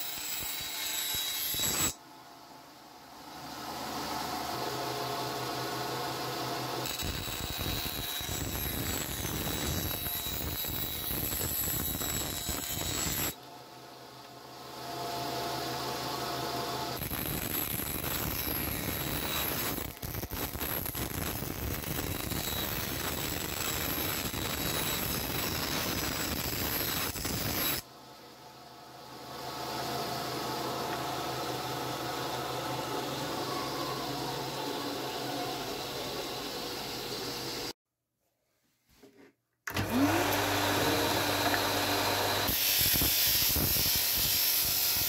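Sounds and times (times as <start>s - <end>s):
band saw cutting wood: 0.0s - 2.0s, 16.5s - 27.8s, 39.7s - 45.0s.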